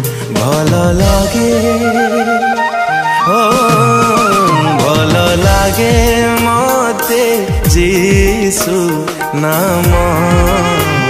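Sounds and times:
flute-like melody: 0:01.0 - 0:08.4, 0:09.8 - 0:11.0.

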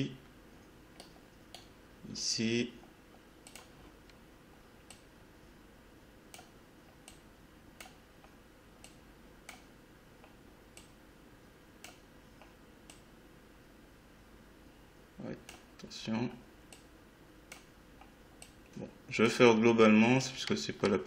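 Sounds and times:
computer mouse clicks: 0:03.4 - 0:03.8, 0:04.8 - 0:05.1, 0:06.3 - 0:07.2, 0:07.8 - 0:11.0, 0:11.8 - 0:13.1, 0:16.7 - 0:16.9, 0:17.5 - 0:18.7.

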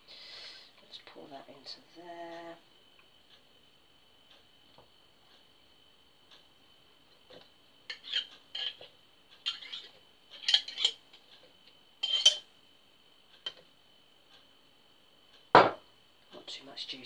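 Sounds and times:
knife clinking against glass jar: 0:12.0 - 0:12.4.

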